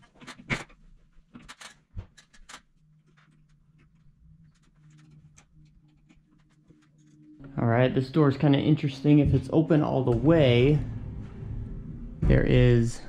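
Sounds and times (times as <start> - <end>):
faint low hum: 2.9 - 13.0.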